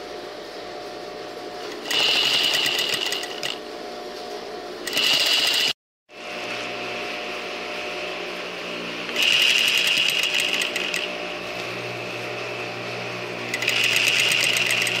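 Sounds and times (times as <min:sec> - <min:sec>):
steady low hum: 0:00.0 - 0:15.0
sewing machine running fast: 0:01.8 - 0:03.6, 0:04.9 - 0:05.8, 0:09.1 - 0:11.2, 0:13.5 - 0:15.0.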